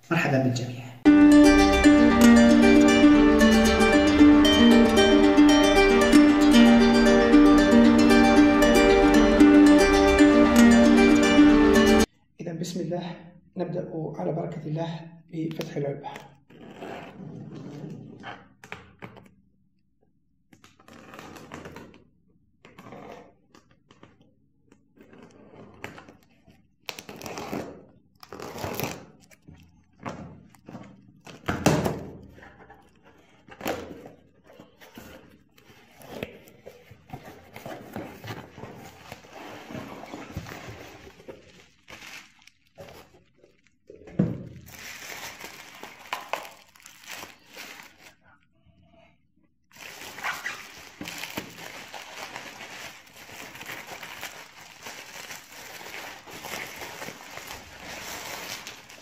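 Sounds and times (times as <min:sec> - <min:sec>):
packing tape peeling and tearing: 0:26.8 - 0:29.6, 0:49.8 - 0:59.0
bubble wrap crinkling: 0:36.9 - 0:44.0, 0:44.6 - 0:48.3, 0:49.7 - 0:59.0.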